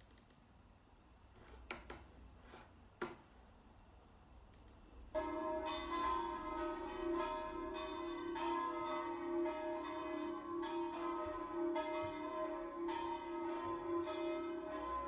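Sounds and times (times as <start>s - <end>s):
church bells ringing: 5.2s - 15.0s.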